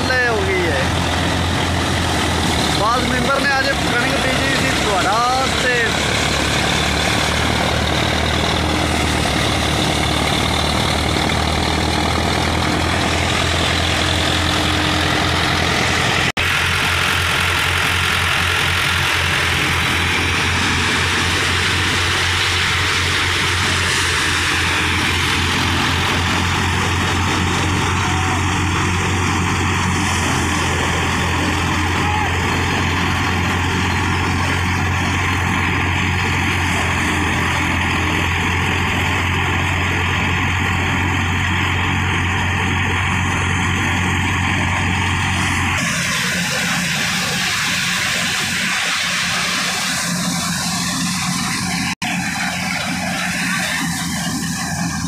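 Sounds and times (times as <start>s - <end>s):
thresher drum and fan whirring: 0.0s - 55.0s
tractor diesel engine running: 0.0s - 55.0s.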